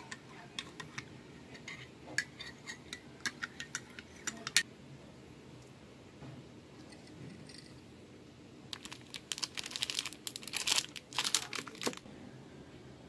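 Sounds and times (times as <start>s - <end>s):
plastic wrapper crinkling: 8.7s - 12.0s.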